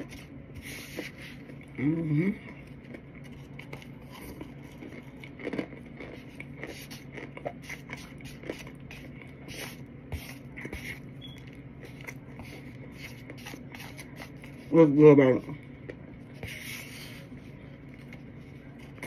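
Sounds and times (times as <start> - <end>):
powder being chewed: 0.0 - 14.7.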